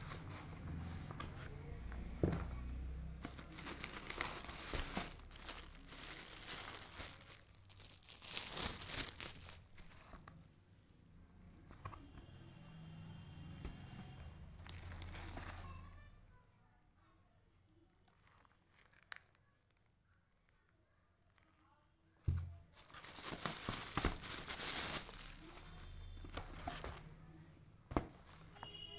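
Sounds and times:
plastic bag crinkling: 0:03.2 - 0:10.4, 0:12.6 - 0:16.0, 0:17.9 - 0:20.0, 0:22.7 - 0:27.1.

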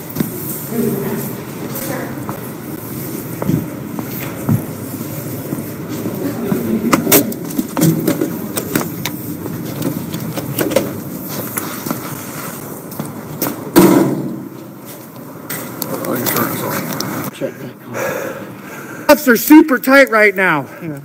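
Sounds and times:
footsteps on hard floor: 0:00.0 - 0:13.7
loud thump: 0:13.7 - 0:14.4.

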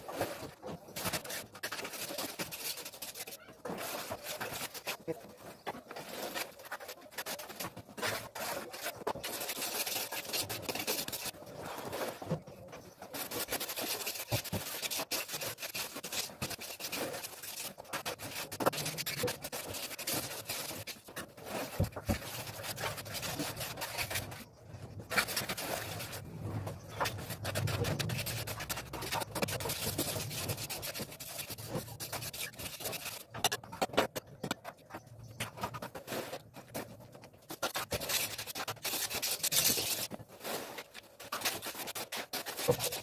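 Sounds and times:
trowel scraping mortar: 0:00.0 - 0:12.2, 0:13.0 - 0:24.5, 0:25.1 - 0:34.8, 0:35.4 - 0:43.0.

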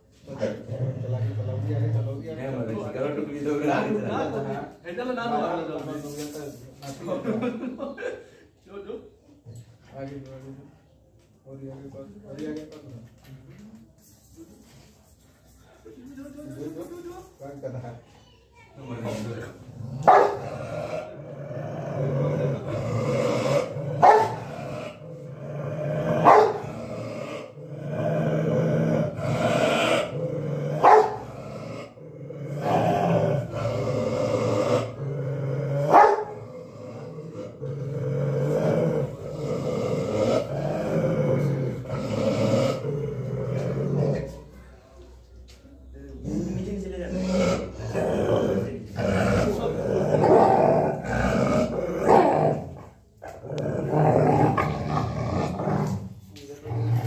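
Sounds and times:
dog growling: 0:19.0 - 0:44.6, 0:46.1 - 0:57.0
dog barking: 0:20.0 - 0:20.4, 0:24.0 - 0:24.4, 0:26.2 - 0:26.6, 0:30.8 - 0:31.2, 0:35.9 - 0:36.4.

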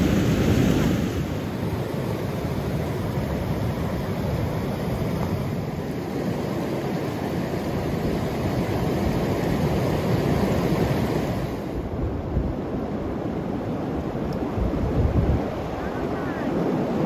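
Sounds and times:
river water rushing over rocks: 0:00.0 - 0:11.9
wind buffeting microphone: 0:07.6 - 0:17.0.

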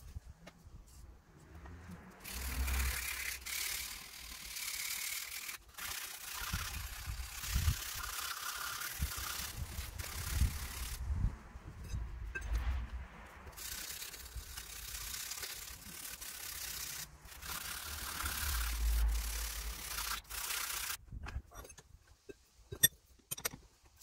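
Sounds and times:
sandpaper scratching on steel: 0:02.1 - 0:11.2, 0:13.4 - 0:21.0.

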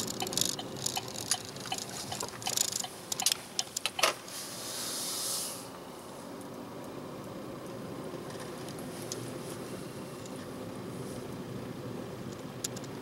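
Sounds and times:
faint regular ticking: 0:00.0 - 0:04.0
sharp clicks: 0:00.0 - 0:04.1.

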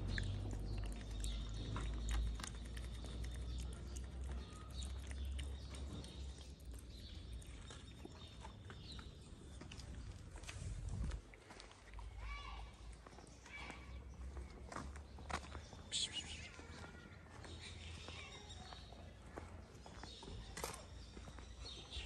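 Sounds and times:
cat chewing wet food: 0:00.0 - 0:09.2.

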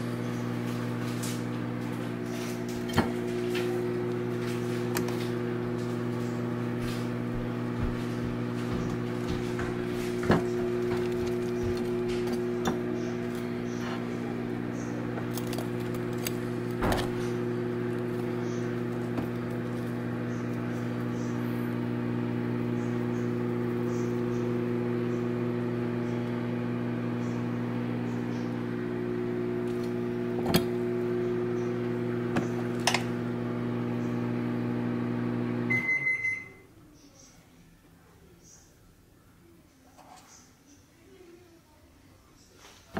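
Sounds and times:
kitchen appliance humming: 0:00.0 - 0:36.7
short beep: 0:35.7 - 0:36.7.

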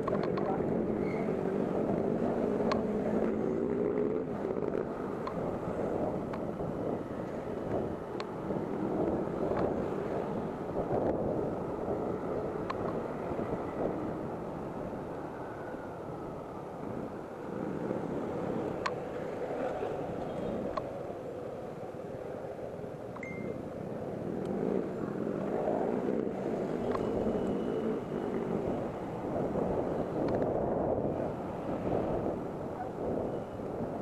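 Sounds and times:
car and motorcycle engines: 0:00.0 - 0:34.0
road noise: 0:00.0 - 0:34.0
wind on microphone: 0:00.0 - 0:34.0.

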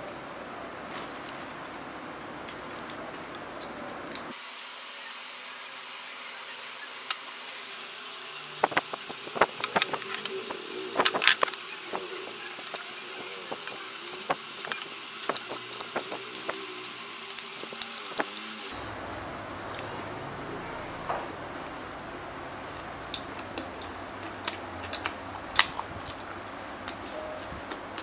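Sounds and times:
steady hiss: 0:04.3 - 0:18.8
chopsticks clicking against bowl: 0:06.9 - 0:18.5.

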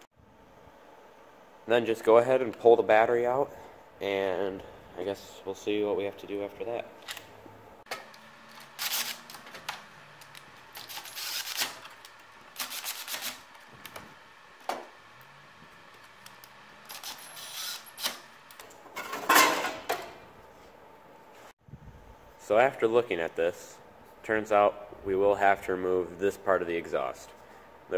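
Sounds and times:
cordless drill: 0:11.0 - 0:11.6, 0:16.9 - 0:18.2
tools and parts clattering: 0:18.6 - 0:20.2.

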